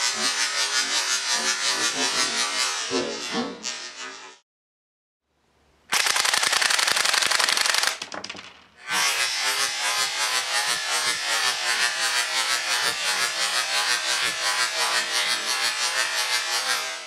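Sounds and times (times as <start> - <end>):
airsoft gun firing full auto: 5.9 - 8.8.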